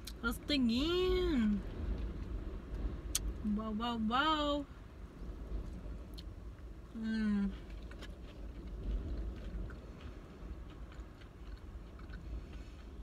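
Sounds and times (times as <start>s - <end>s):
wind rumbling against car: 0.0s - 13.0s
woman chewing food: 6.1s - 13.0s.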